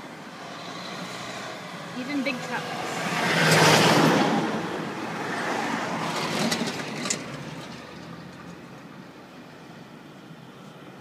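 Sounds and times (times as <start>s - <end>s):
vehicles passing close by: 0.0s - 11.0s.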